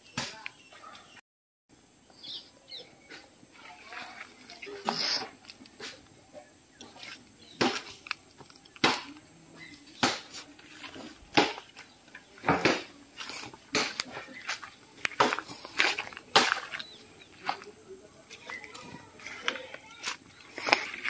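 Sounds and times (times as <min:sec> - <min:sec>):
short scratchy hisses of fire: 0:04.8 - 0:06.0.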